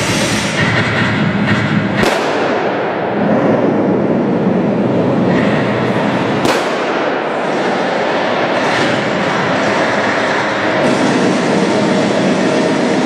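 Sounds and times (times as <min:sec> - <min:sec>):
model tank cannon shots: 0:06.4 - 0:07.3.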